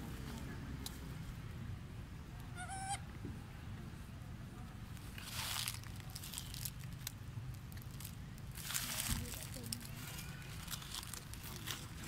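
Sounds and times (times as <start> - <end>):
dry leaves rustling and crunching: 5.1 - 12.0.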